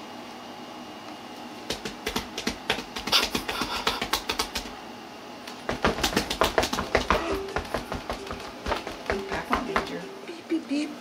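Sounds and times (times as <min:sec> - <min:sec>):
rapid light taps and clicks: 0:01.7 - 0:04.7, 0:05.5 - 0:09.9.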